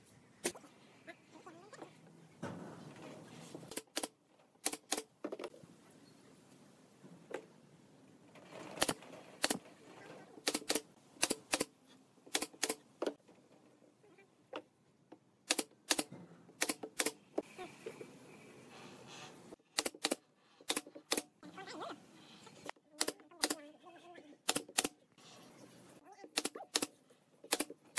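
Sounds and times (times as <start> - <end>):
nail gun firing into wood: 10.4 - 11.7, 12.3 - 13.2, 15.5 - 17.2, 19.8 - 21.3, 26.4 - 27.8.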